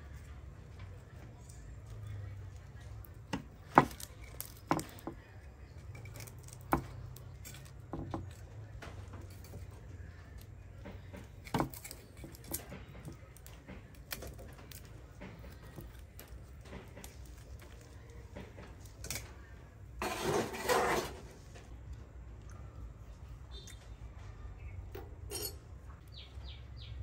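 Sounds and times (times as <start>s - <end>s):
cookware and utensils knocking: 25.3s - 25.6s.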